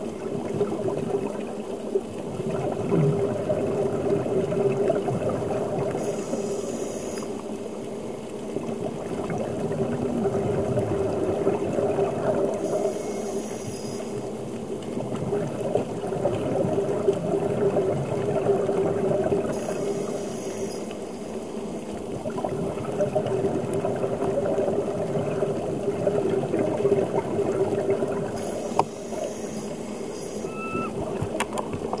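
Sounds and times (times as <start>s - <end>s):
water bubbling and gurgling: 0.0s - 32.0s
diver breathing through regulator: 6.0s - 7.3s, 12.6s - 14.2s, 19.5s - 21.1s.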